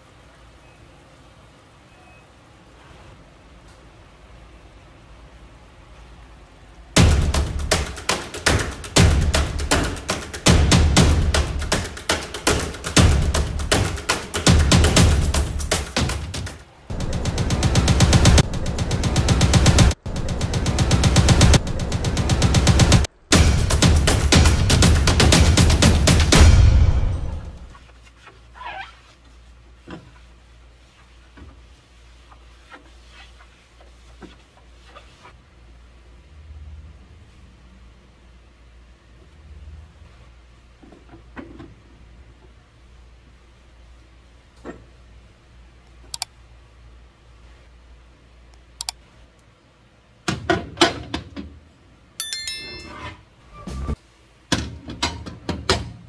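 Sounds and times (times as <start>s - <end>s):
sponge scrubbing stovetop: 27.7s - 35.4s.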